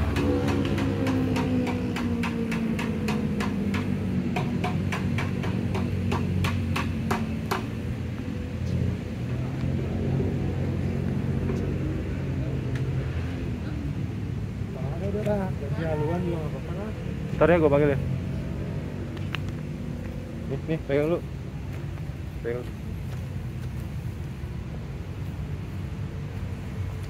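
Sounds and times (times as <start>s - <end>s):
rapid even knocking: 0.0s - 7.7s.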